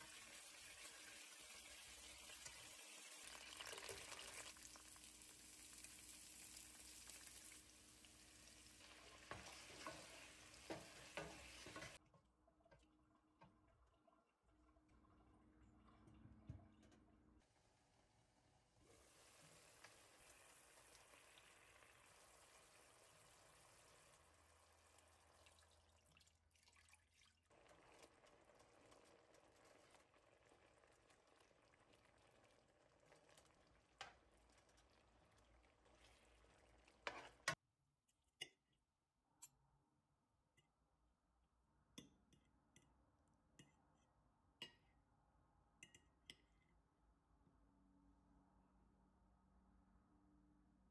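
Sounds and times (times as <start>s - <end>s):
cream pouring into sauce: 1.6s - 7.6s.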